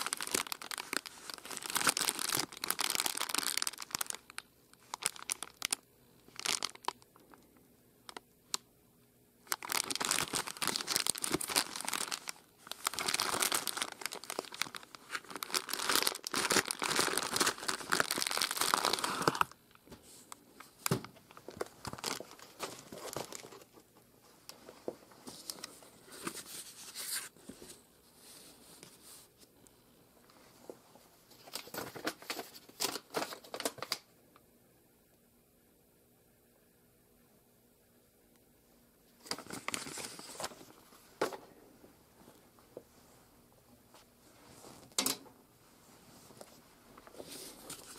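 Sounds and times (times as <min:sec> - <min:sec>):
plastic packaging crinkling: 0:00.0 - 0:08.6, 0:09.4 - 0:19.6, 0:20.8 - 0:23.8, 0:31.3 - 0:34.1, 0:39.2 - 0:41.4.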